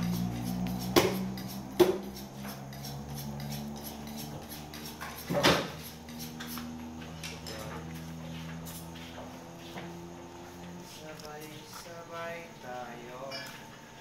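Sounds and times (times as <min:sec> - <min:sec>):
steady low hum: 0:00.0 - 0:14.0
meat and knife knocking on table: 0:00.9 - 0:02.0.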